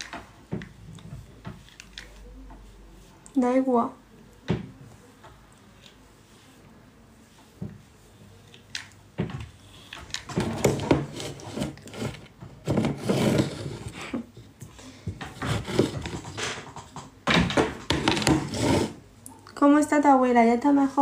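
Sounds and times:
rubbing and scraping: 9.7 - 14.4, 15.1 - 19.0.

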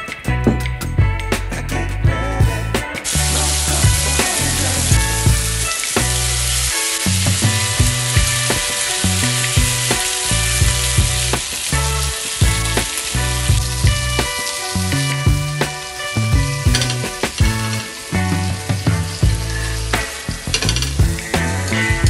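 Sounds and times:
background music with bass: 0.0 - 22.0
chicken sizzling in hot oil: 3.0 - 22.0.

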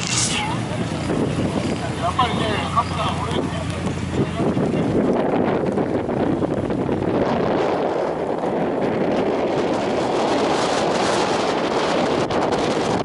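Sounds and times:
car engines idling: 0.0 - 7.2
wind rumbling on microphone: 0.0 - 13.0.

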